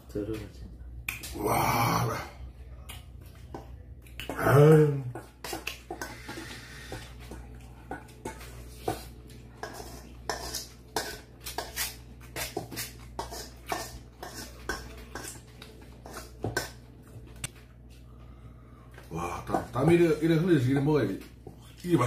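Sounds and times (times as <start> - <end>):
spoons clinking in metal bowls: 9.6 - 15.4.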